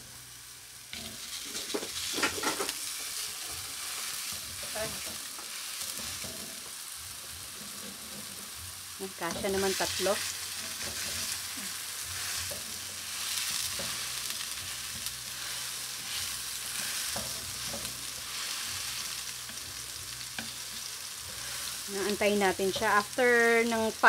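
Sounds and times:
patties sizzling in frying pan: 0.0s - 24.0s
metal spatula scraping pan: 0.9s - 6.7s, 9.2s - 21.9s.

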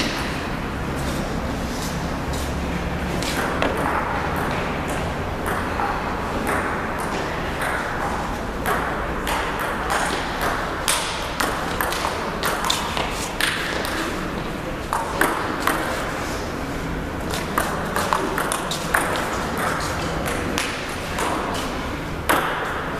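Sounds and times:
table tennis balls clicking: 3.2s - 14.2s, 17.3s - 21.7s.

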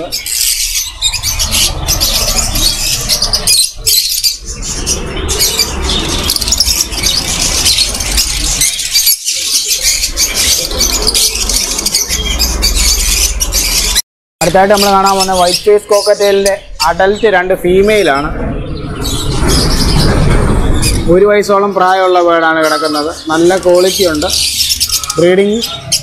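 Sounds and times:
parrots squawking: 0.0s - 14.0s, 22.6s - 26.0s
low rumble: 18.2s - 21.2s.

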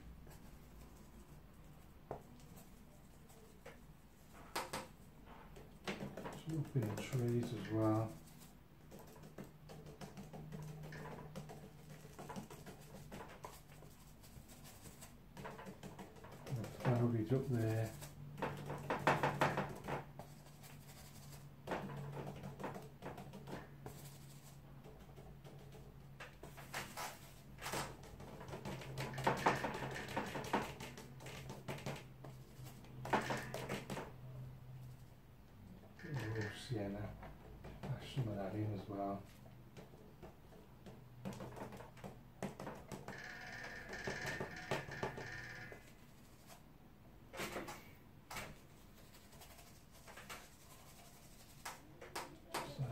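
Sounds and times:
paintbrush tapping on paper: 5.6s - 20.4s.

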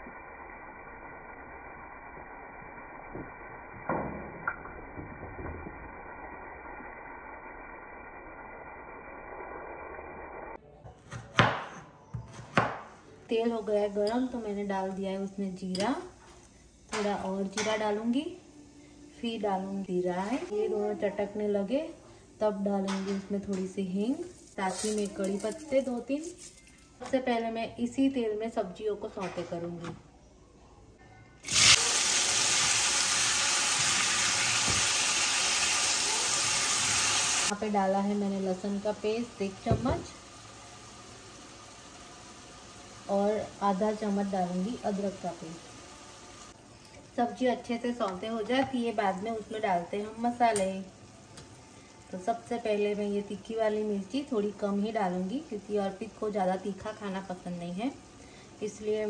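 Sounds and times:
knife chopping on wooden board: 11.0s - 12.9s
vegetables sizzling in hot oil: 23.9s - 26.6s, 31.4s - 59.0s
tap water running: 31.4s - 37.6s.

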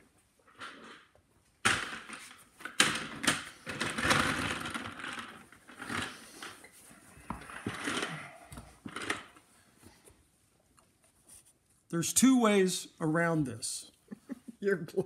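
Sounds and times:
scraping and rustling: 3.6s - 10.0s.

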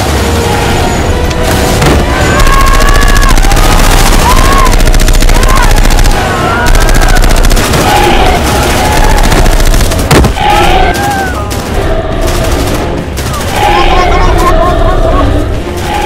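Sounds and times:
automatic rifle fire: 2.3s - 11.2s.

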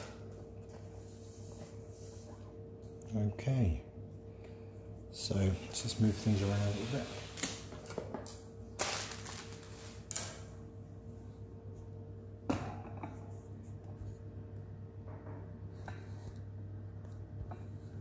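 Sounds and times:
steady low hum: 0.0s - 18.0s
packaging rustling: 8.8s - 10.4s.

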